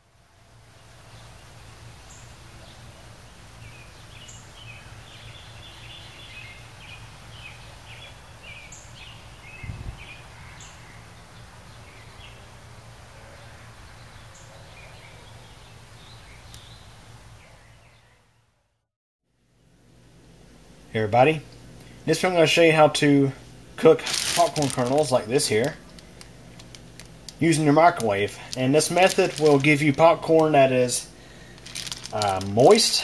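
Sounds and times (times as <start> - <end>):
birds chirping: 1.0 - 18.2, 23.8 - 33.0.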